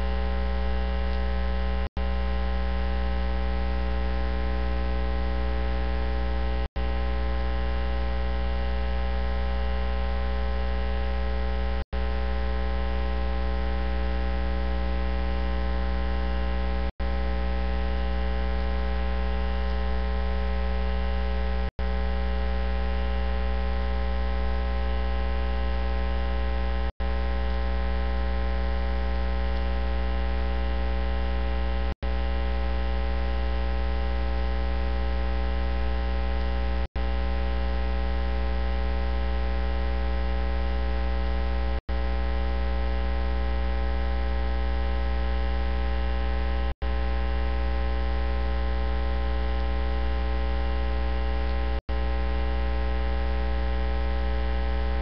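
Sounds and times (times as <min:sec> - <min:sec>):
loud electrical mains hum: 0:00.0 - 0:55.0.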